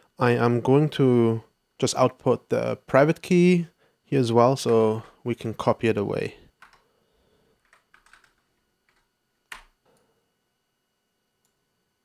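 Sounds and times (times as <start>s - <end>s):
keyboard keystrokes: 6.6s - 6.8s, 7.6s - 9.8s.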